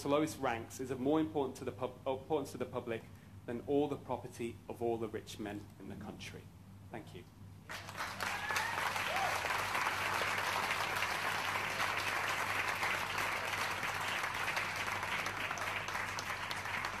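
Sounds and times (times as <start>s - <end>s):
large audience applauding: 7.7s - 17.0s.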